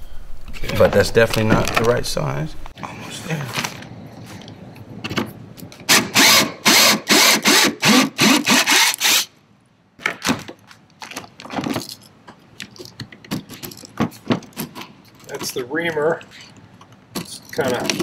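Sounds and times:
cordless drill boring plastic: 5.9s - 9.3s.

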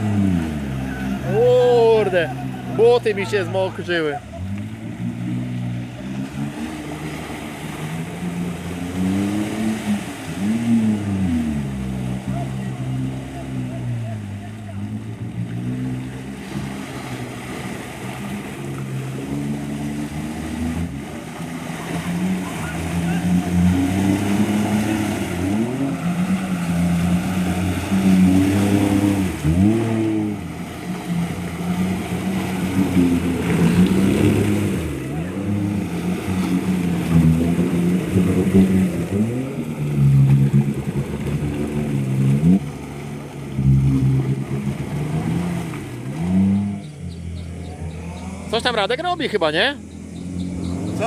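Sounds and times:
off-road vehicle engine revving: 0.0s - 51.0s.

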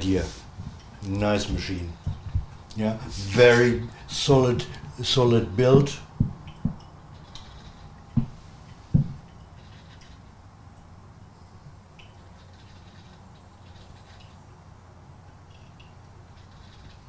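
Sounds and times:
espresso crackling and dripping: 5.6s - 11.2s
short low knocks: 8.2s - 9.2s.

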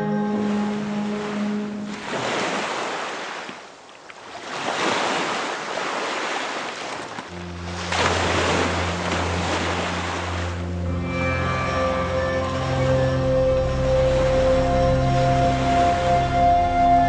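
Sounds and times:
music with low held tones: 0.0s - 2.0s, 7.3s - 17.0s
sea waves washing in: 0.0s - 16.8s.

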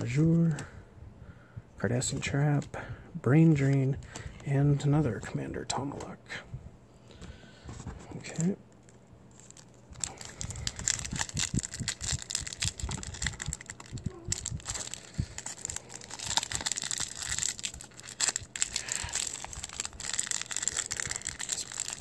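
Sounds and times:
foil wrapper crinkling and tearing: 8.2s - 22.0s.

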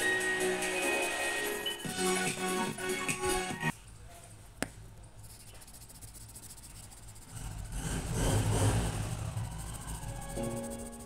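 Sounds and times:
pencil shading on paper: 0.7s - 3.6s, 5.2s - 11.0s.

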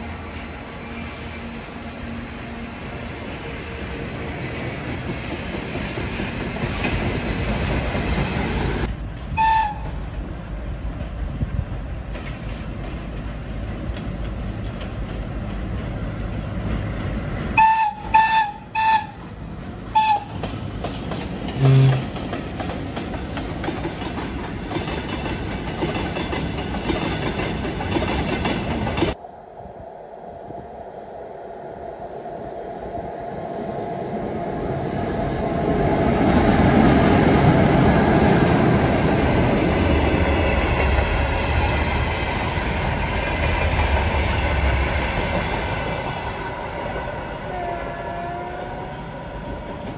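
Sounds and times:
freight train rumbling past: 0.0s - 49.9s
locomotive horn toots: 9.4s - 9.9s, 17.6s - 19.2s, 19.9s - 20.4s, 21.6s - 22.2s.

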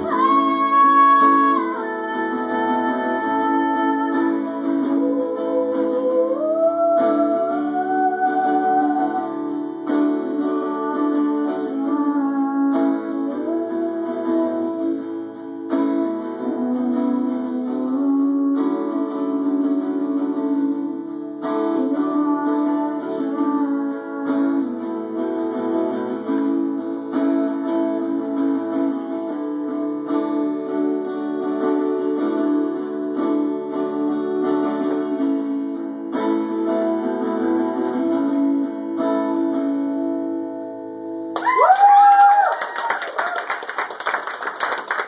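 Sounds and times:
acoustic guitar: 0.0s - 45.0s
audience cheering and clapping: 41.4s - 45.0s.

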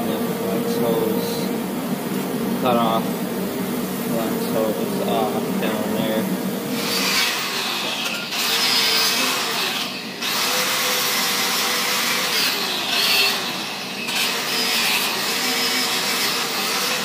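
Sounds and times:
wire wheel grinder on steel: 6.7s - 17.0s.

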